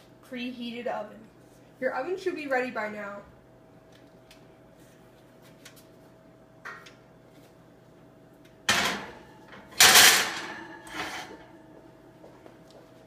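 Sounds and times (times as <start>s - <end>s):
baking sheet clanking: 8.7s - 11.6s
pan scraping on oven rack: 9.8s - 11.5s.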